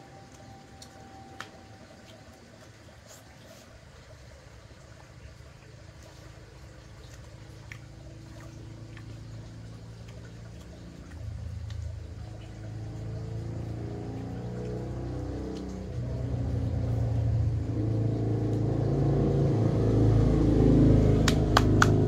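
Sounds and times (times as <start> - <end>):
vehicle engine humming: 4.6 - 22.0.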